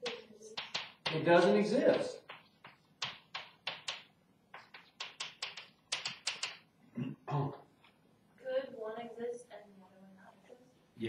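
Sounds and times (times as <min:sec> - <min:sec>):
chalk tapping on a blackboard: 0:00.0 - 0:06.6.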